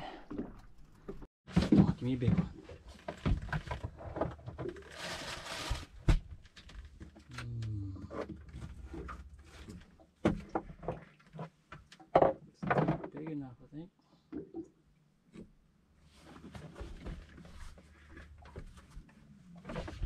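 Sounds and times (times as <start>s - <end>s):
knocks and clunks: 10.2s - 13.5s.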